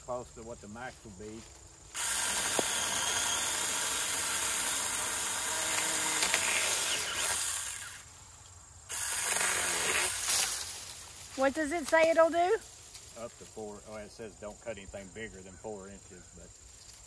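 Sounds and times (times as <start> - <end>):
mini chainsaw cutting branch: 1.9 - 8.1, 8.9 - 11.0.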